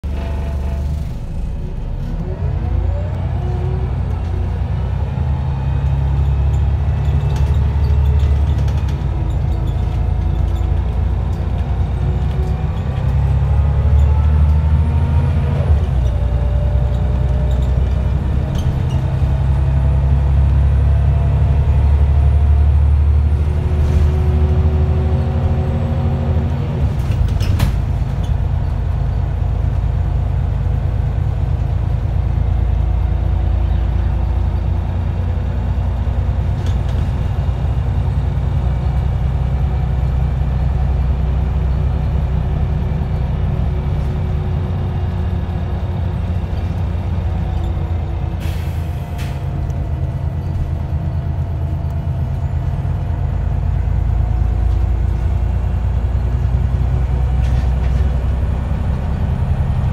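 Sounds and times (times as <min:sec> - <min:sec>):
bus diesel engine with whine: 0:00.0 - 0:59.9.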